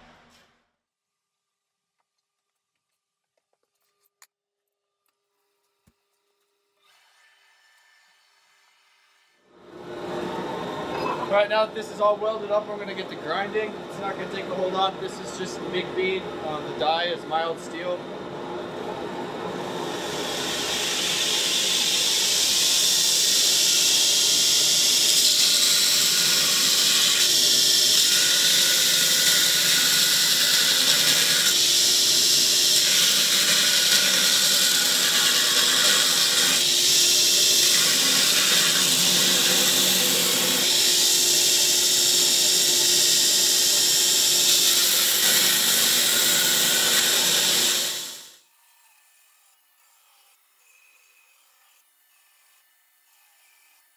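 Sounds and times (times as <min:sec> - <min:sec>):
belt grinder grinding metal: 0:20.0 - 0:53.9.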